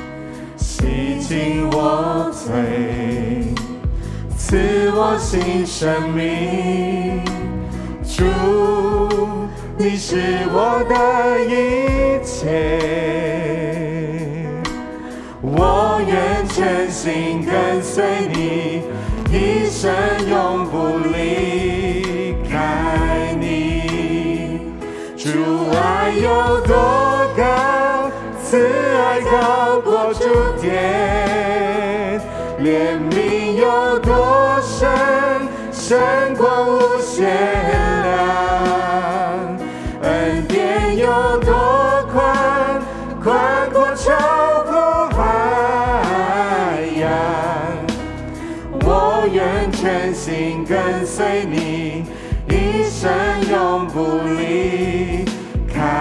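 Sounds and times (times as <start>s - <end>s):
group singing worship song: 0.0s - 56.0s
instrumental accompaniment: 0.0s - 56.0s.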